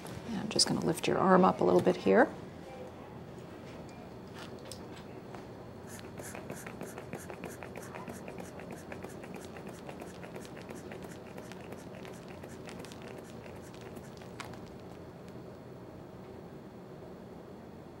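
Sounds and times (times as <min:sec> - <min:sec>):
quick light clicks and scratching: 0:05.9 - 0:15.0.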